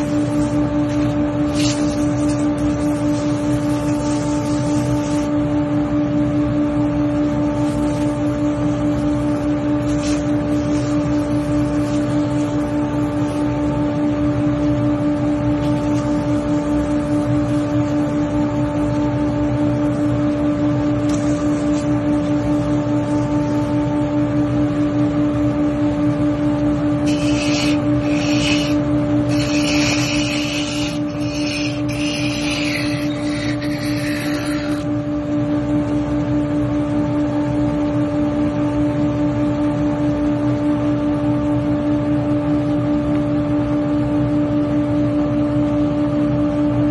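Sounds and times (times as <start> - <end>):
lathe motor hum: 26.6 - 35.1
tool cutting into spinning wood: 27.0 - 34.9.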